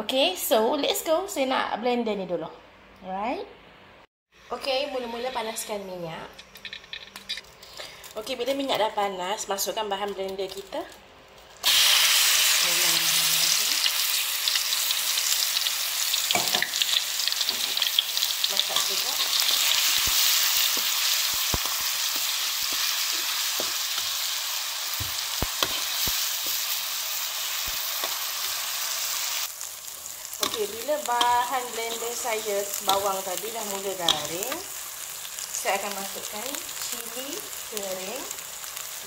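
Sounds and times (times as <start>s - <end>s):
metal spatula scraping a pan: 4.5s - 7.8s
paste sizzling in hot oil: 11.6s - 39.0s.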